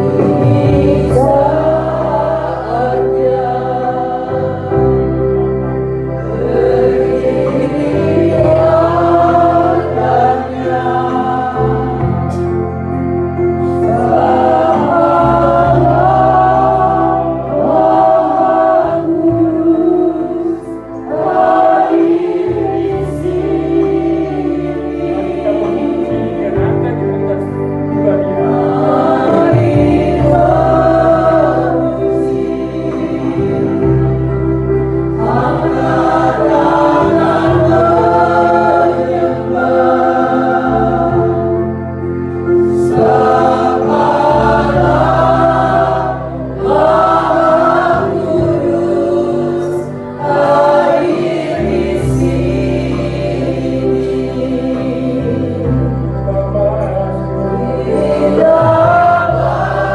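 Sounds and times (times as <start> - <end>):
congregation singing: 0.0 - 59.9
instrumental backing with bass: 0.0 - 59.9.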